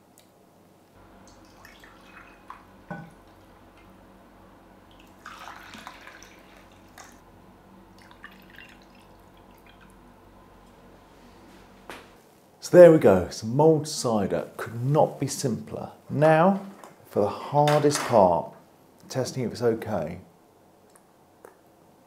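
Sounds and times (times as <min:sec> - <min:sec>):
liquid trickling into glasses: 0:01.2 - 0:03.2, 0:04.9 - 0:07.2, 0:08.0 - 0:10.0.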